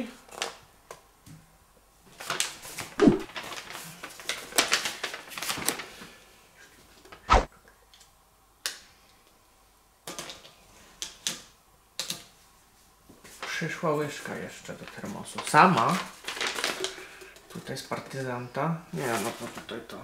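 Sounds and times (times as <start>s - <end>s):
paper leaflet rustling: 2.2s - 6.0s, 14.2s - 17.0s, 19.0s - 19.8s
sharp knock: 3.0s - 3.3s.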